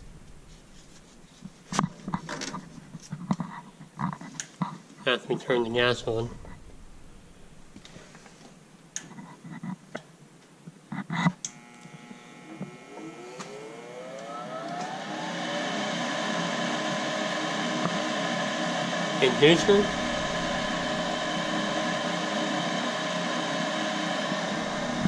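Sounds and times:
furnace motor whining and whirring: 11.4s - 25.0s.

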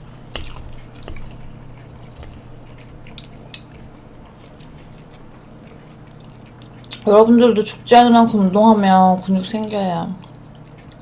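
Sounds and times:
low steady hum: 0.0s - 11.0s
squishy eating sounds: 0.3s - 7.1s.

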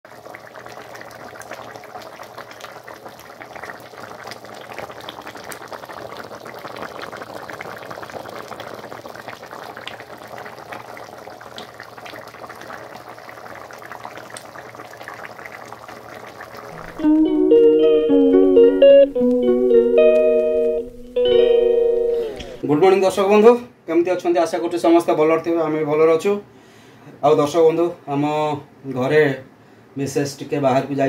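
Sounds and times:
curry bubbling with pops: 0.1s - 17.0s.

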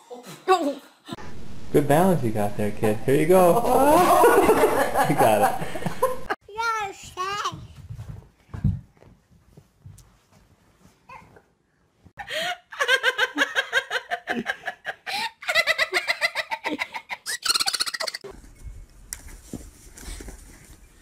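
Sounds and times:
high-pitched giggling: 15.4s - 18.3s.

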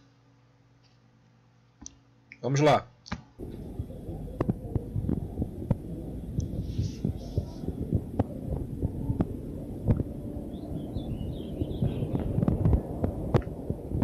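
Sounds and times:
wind buffeting microphone: 3.4s - 14.0s.

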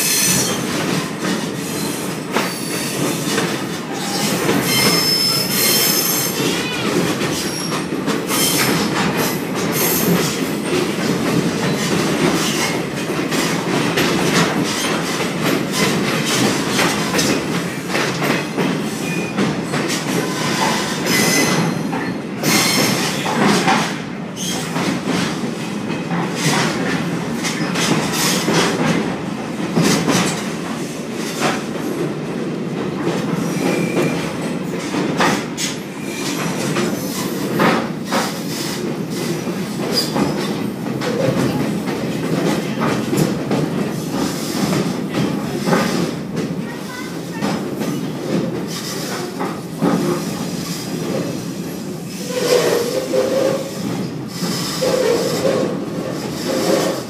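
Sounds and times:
train car running noise: 0.0s - 57.0s
wheels clacking over rail joints: 0.3s - 51.4s
wheel squeal: 4.0s - 6.3s.

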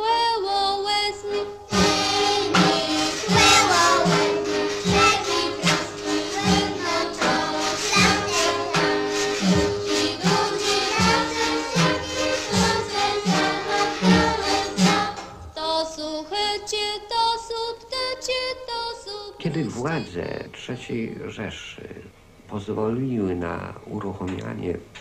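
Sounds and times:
instrumental accompaniment: 1.2s - 15.7s
children's choir singing: 1.2s - 20.0s.

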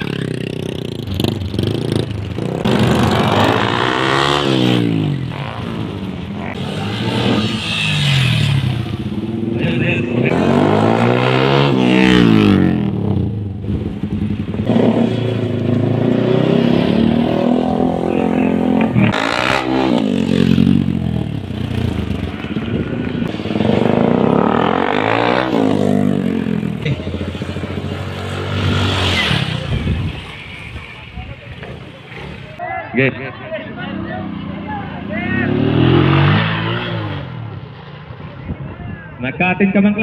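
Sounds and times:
motorcycle engines revving: 0.0s - 40.0s.

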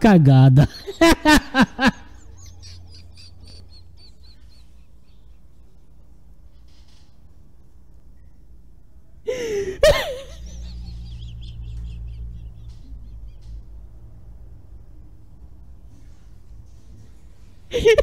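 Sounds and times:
man laughing: 0.5s - 6.0s, 9.3s - 13.5s, 17.7s - 18.0s.

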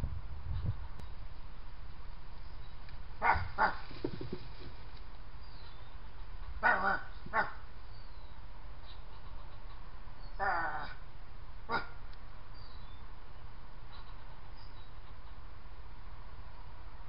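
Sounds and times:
dog barking: 3.2s - 3.8s, 6.6s - 7.6s.

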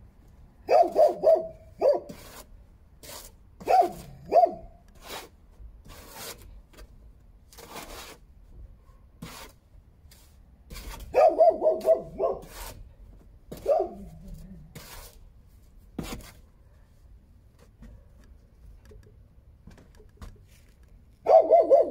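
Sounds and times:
dog barking: 0.7s - 2.1s, 3.6s - 4.7s, 11.1s - 12.5s, 13.6s - 14.1s, 21.2s - 21.9s.

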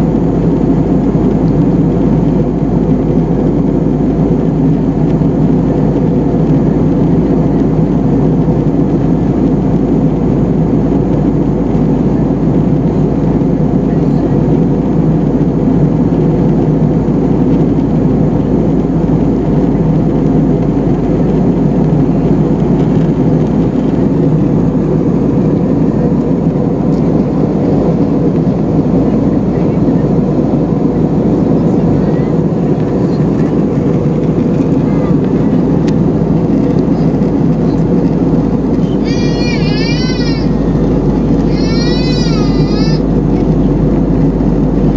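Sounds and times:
airflow over fuselage: 0.0s - 44.9s
jet engine rumble: 0.0s - 44.9s.

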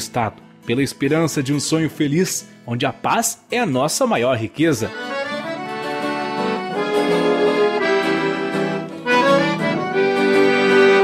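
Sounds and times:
piano accordion playing chords: 4.8s - 11.0s.

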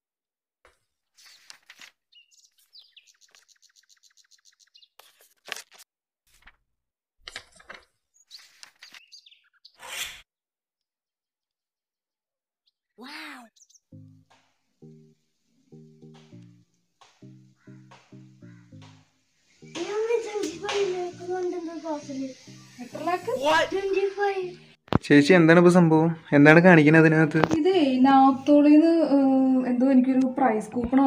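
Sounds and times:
paper rustling and tearing: 1.1s - 2.0s, 5.0s - 6.6s.

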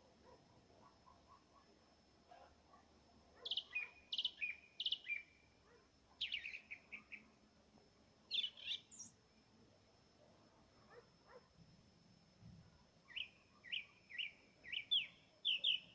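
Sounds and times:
nightingale singing: 3.4s - 5.5s, 6.1s - 7.4s, 8.3s - 9.2s, 13.1s - 15.9s.

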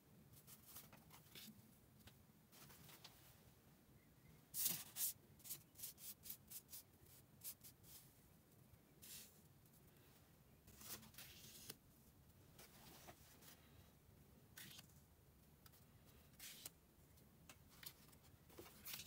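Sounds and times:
cards rustling as slid: 16.3s - 16.8s.

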